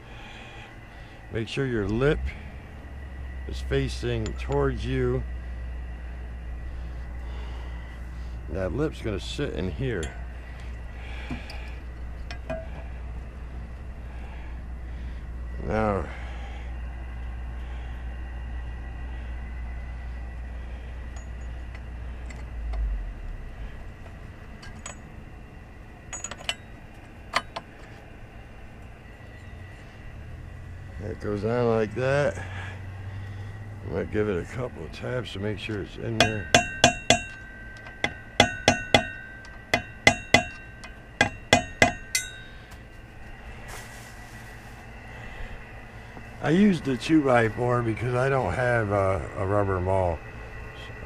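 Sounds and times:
low rumble: 0:00.0 - 0:41.4
light metallic clinks: 0:03.9 - 0:04.8, 0:09.9 - 0:10.4, 0:21.0 - 0:22.5, 0:24.6 - 0:25.2, 0:26.1 - 0:27.9, 0:35.7 - 0:42.9
wood block knocking metal: 0:36.2 - 0:42.4.

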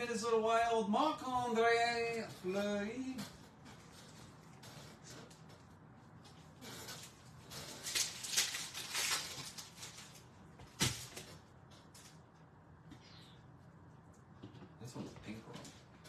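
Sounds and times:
wrapper crinkling: 0:06.6 - 0:12.2.

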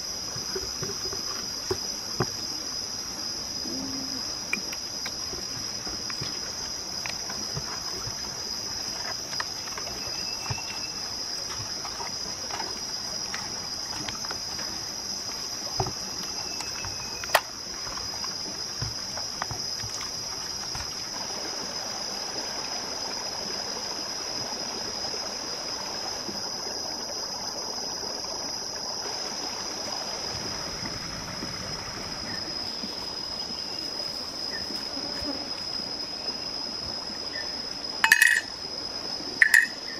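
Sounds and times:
running water: 0:00.0 - 0:39.9
high-pitched insect drone: 0:39.4 - 0:39.9.

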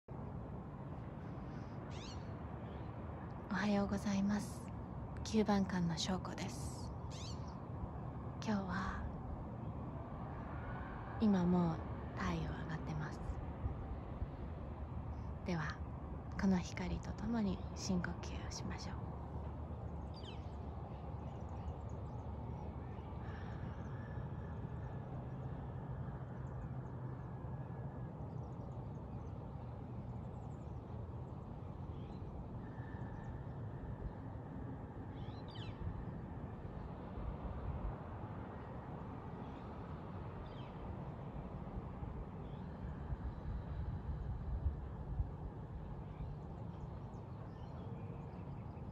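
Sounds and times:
low background rumble: 0:00.0 - 0:48.9
faint bird calls: 0:01.5 - 0:02.9, 0:07.0 - 0:07.6, 0:20.0 - 0:37.0.

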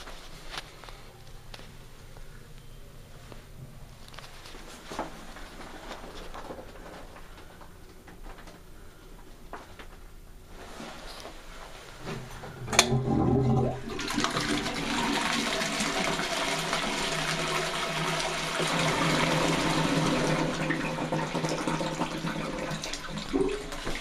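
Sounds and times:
toilet flushing: 0:12.6 - 0:24.0.

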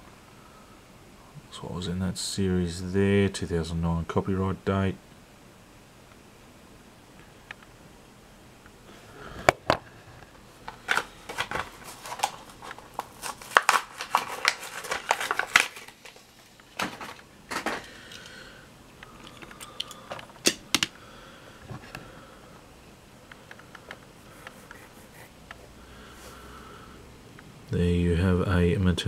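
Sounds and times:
plastic packaging cracking and crinkling: 0:10.6 - 0:18.2.

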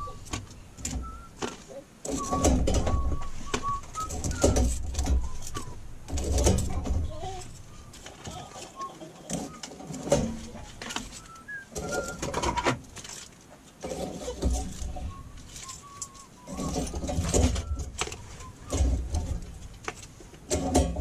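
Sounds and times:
bird calls: 0:00.0 - 0:12.6, 0:13.8 - 0:19.4
metal tongs scraping grill grate: 0:09.2 - 0:19.9.

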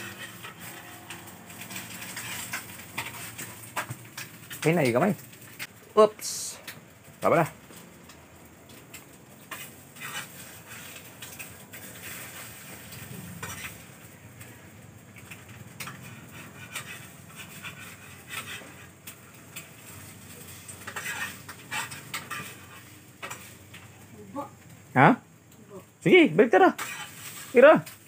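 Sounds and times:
spatula scraping frying pan: 0:00.0 - 0:04.7, 0:09.4 - 0:14.1, 0:15.2 - 0:23.9, 0:26.8 - 0:28.0
eggs sizzling in oil: 0:00.0 - 0:28.0.

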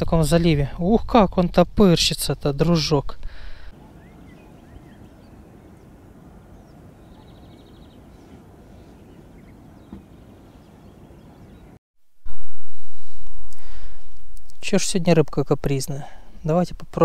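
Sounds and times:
faint bird chirps: 0:03.8 - 0:12.4.

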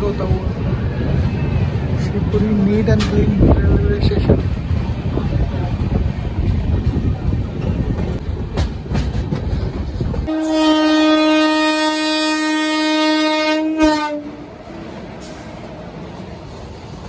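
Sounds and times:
train rumbling: 0:00.0 - 0:17.0
train clicks: 0:02.3 - 0:10.7
locomotive horn: 0:10.3 - 0:14.4.

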